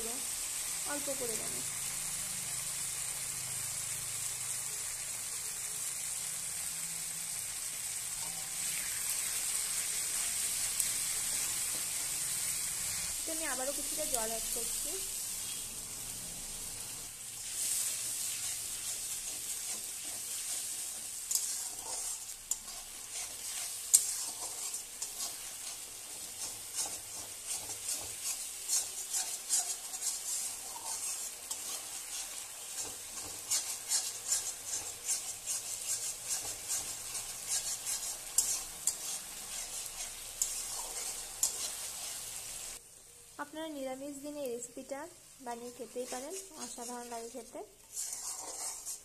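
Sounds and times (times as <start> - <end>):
spice paste sizzling in oil: 0.0 - 49.0
spatula scraping metal pan: 17.4 - 42.5, 45.8 - 49.0.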